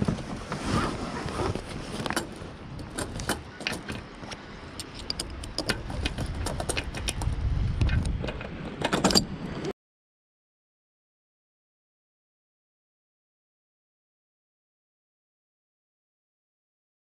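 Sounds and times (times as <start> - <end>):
sail fittings clicking on mast track: 1.9 - 9.7.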